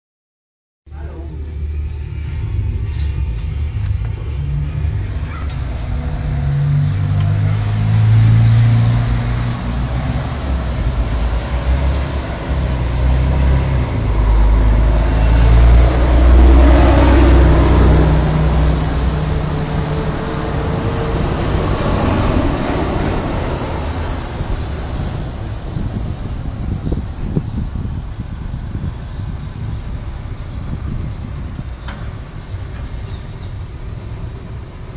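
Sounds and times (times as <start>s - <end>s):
bus engine rumble: 0.9s - 34.9s
tyre hiss on wet street: 17.4s - 26.5s.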